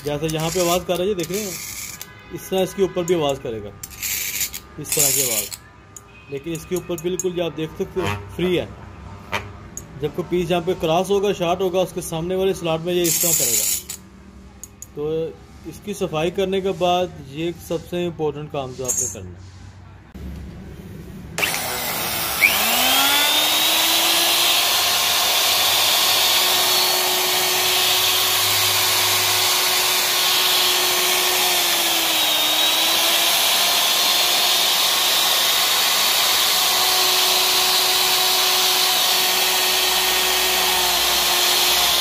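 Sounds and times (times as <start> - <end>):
electric router motor whine: 21.4 - 42.0.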